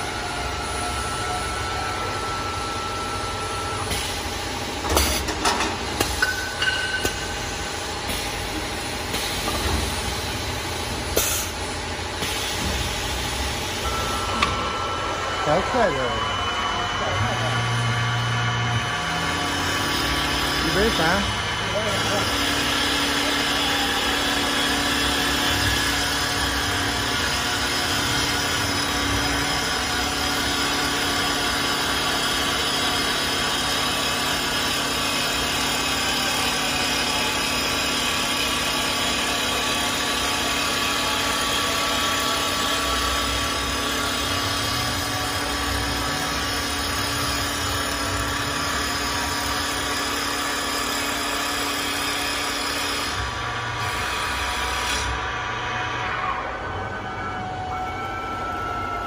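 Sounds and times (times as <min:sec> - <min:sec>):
wood lathe whine: 0:00.0 - 0:04.8, 0:05.8 - 0:59.0
wood cutting noise: 0:13.8 - 0:56.6.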